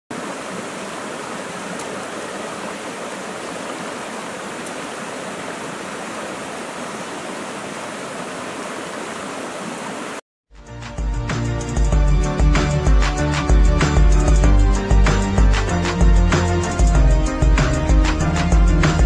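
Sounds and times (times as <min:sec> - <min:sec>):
stream flowing over rocks: 0:00.1 - 0:10.2.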